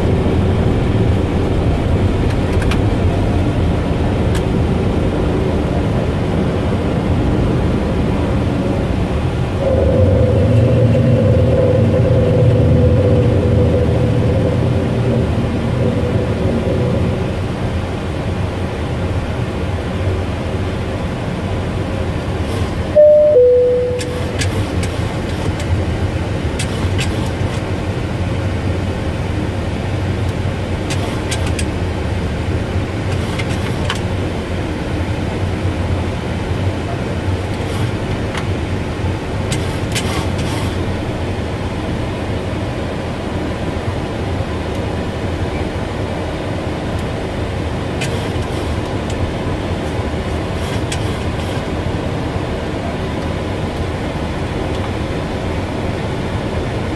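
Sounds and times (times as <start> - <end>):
airflow and engine rumble: 0.0 - 56.9.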